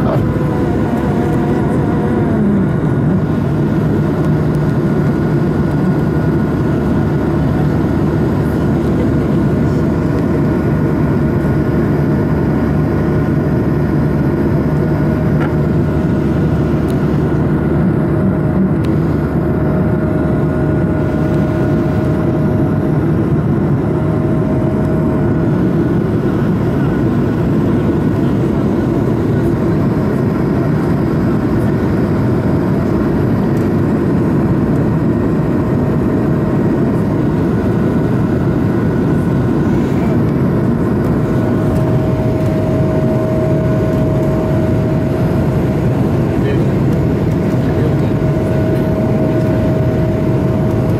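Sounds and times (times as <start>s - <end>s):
jet engine cabin drone: 0.0s - 50.9s.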